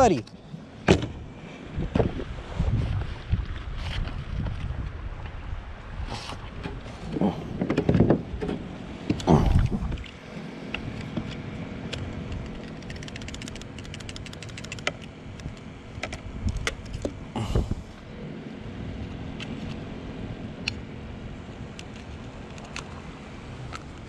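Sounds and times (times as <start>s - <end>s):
small irregular clicks and taps: 10.0s - 17.2s.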